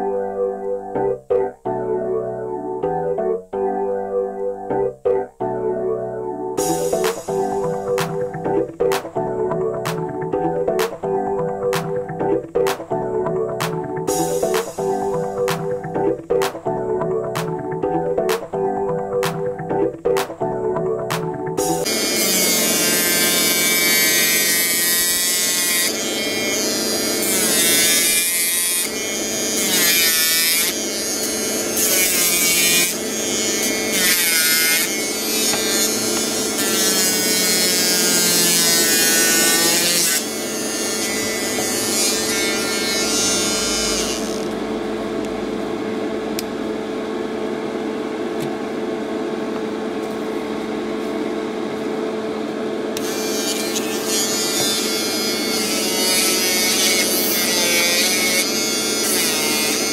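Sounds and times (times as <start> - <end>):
electric nail file whining: 6.6 - 16.5, 21.1 - 44.8, 53.0 - 59.9.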